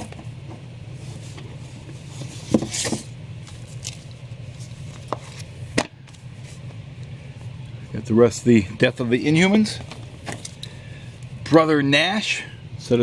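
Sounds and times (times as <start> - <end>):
steady low hum: 0.0 - 13.0
paper rustling: 1.0 - 6.7.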